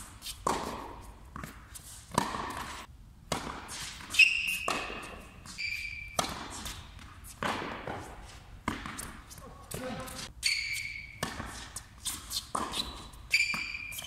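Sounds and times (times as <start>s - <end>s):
shoes squeaking on court: 0.0s - 2.9s, 3.5s - 14.0s
racket hitting tennis ball: 0.0s - 14.0s
tennis ball bouncing: 0.0s - 14.0s.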